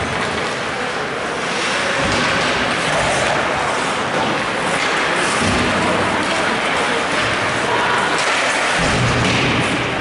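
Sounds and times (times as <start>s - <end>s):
arena hubbub: 0.0s - 10.0s
skates scraping ice: 0.0s - 10.0s.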